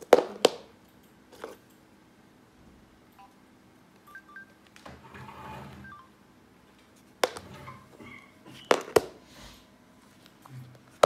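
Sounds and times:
phone key beeps: 4.1s - 4.6s, 5.8s - 6.1s.

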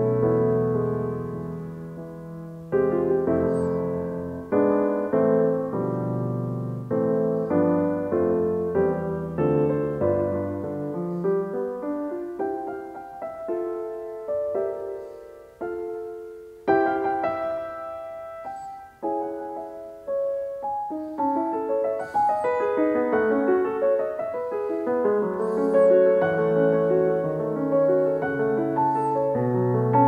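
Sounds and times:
piano music: 0.0s - 30.0s.

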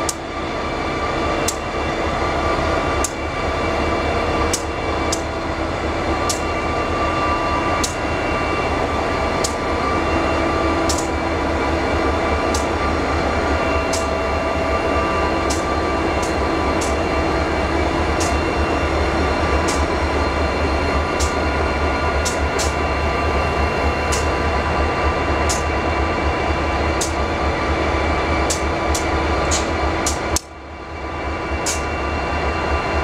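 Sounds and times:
locomotive engines droning: 0.0s - 33.0s.

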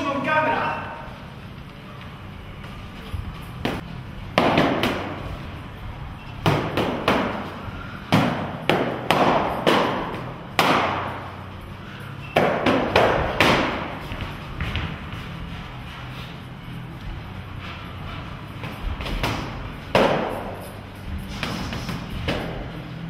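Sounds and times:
boxing gloves hitting striking sticks: 3.6s - 5.3s, 6.4s - 11.3s, 12.2s - 15.0s, 18.6s - 20.6s, 21.3s - 22.7s.

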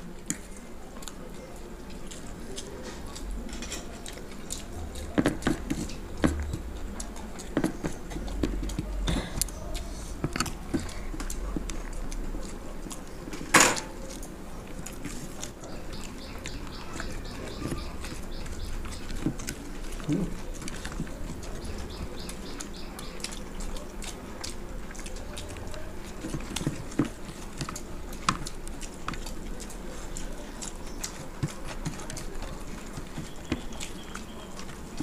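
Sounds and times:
noodles slurped and chewed: 0.0s - 35.0s
forks clicking on plates: 2.1s - 6.4s.

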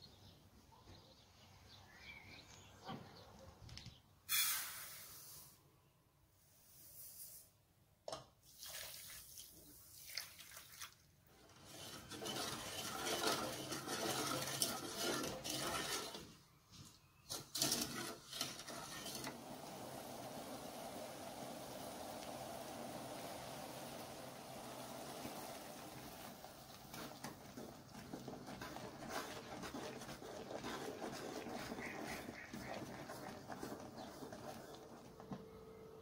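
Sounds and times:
liquid sloshing while stirred: 10.0s - 16.4s, 17.3s - 19.4s, 26.7s - 35.4s
syrup boiling with hiss and bubbling: 10.6s - 36.0s.

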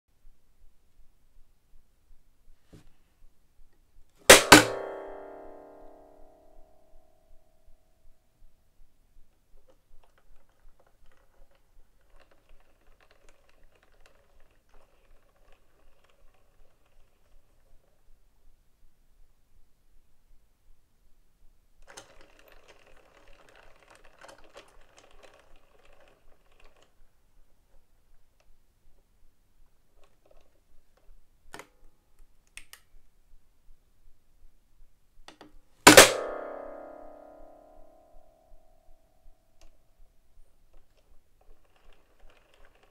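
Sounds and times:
wooden lids clapping shut: 4.3s - 4.9s
music box winding ratchet clicks: 21.8s - 26.9s, 41.4s - 42.9s.

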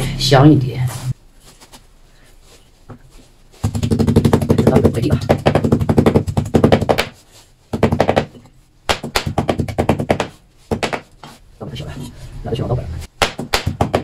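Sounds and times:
cleaver chopping on wooden board: 13.2s - 14.0s.

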